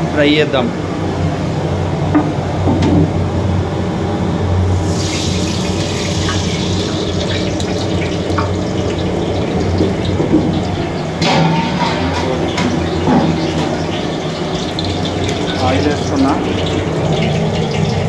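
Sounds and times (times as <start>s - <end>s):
water running: 4.8s - 18.0s.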